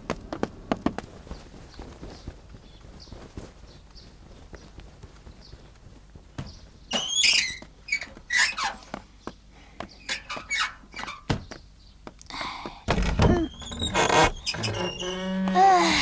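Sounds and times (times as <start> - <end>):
iron gates creaking: 6.9 - 8.9, 10.0 - 11.4, 13.0 - 16.0.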